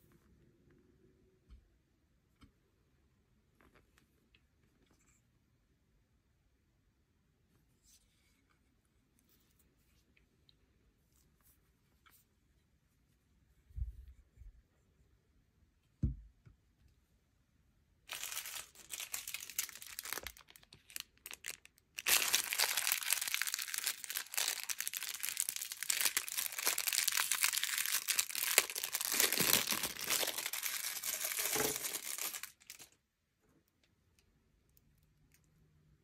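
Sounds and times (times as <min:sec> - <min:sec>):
plastic bag crinkling: 0:18.1 - 0:33.0.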